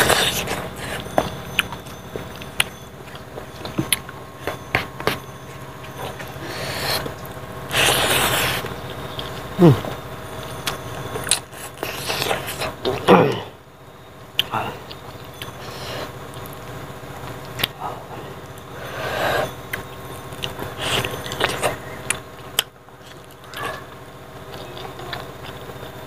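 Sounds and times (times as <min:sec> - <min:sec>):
breathy rush: 0:05.7 - 0:10.0.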